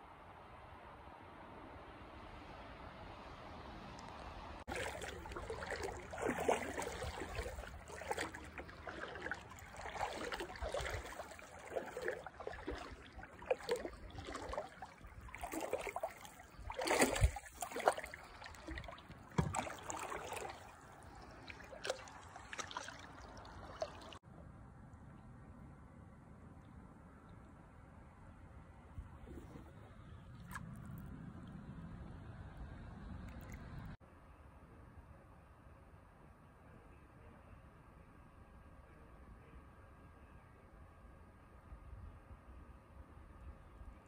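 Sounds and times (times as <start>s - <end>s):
water lapping and splashing: 4.6s - 24.2s, 29.0s - 34.0s.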